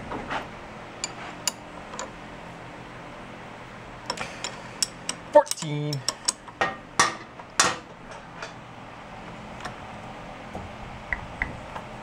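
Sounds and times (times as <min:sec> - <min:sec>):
wrench clinking on metal: 0:04.4 - 0:06.4.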